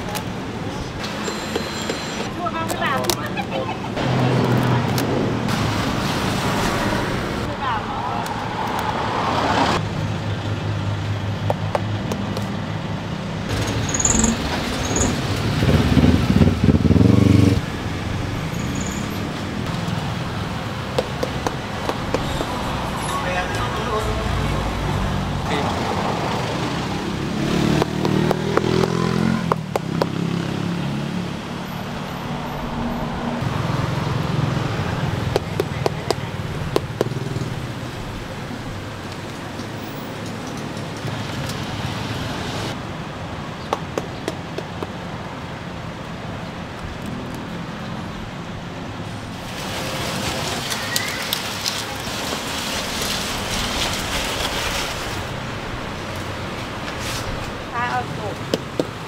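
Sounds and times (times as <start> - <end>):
road traffic: 0.0 - 59.0
knife chopping husks: 27.7 - 28.9.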